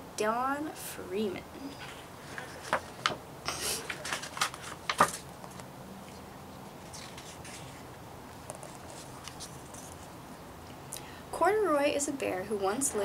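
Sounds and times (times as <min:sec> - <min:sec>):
book pages rustling: 0:01.7 - 0:10.2.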